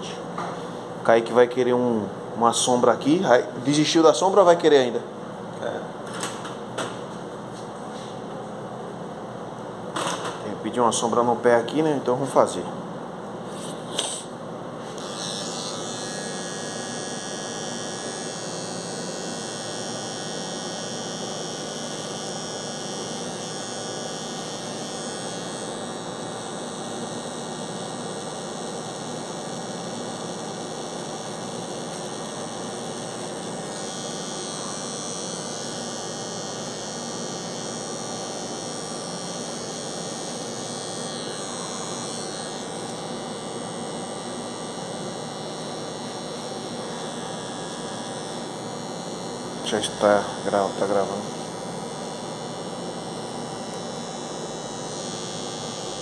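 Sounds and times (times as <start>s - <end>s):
electric hair clipper humming: 13.9s - 14.3s, 14.9s - 56.0s.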